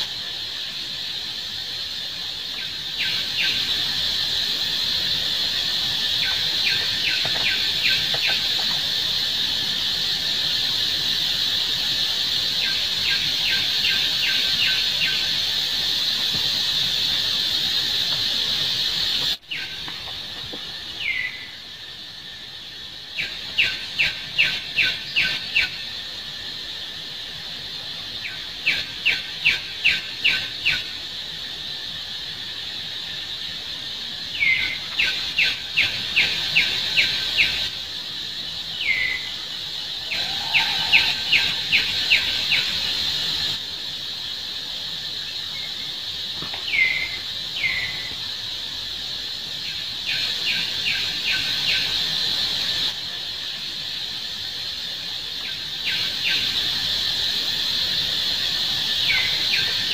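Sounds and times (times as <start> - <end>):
high insect drone: 0.0 - 59.9
bird downward-slurred calls: 40.0 - 42.6.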